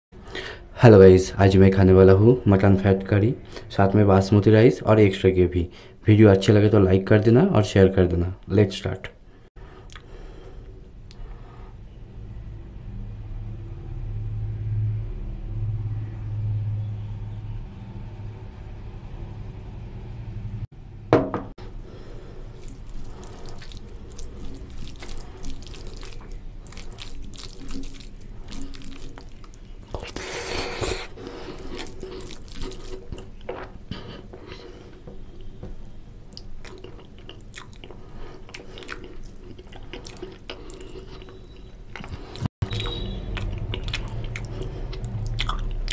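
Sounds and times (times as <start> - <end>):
hand mixing wet rice: 22.0 - 33.5
gravy pouring onto rice: 22.4 - 29.6.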